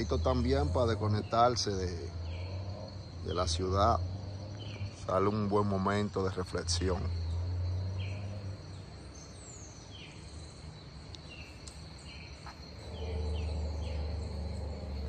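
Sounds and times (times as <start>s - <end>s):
high-pitched insect drone: 0.0s - 15.0s
low hum: 6.5s - 15.0s.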